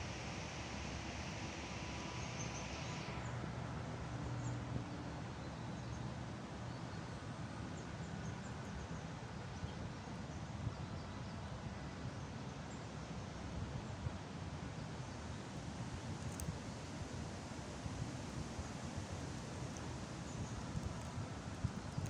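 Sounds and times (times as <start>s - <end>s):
small clicks: 16.2s - 16.6s.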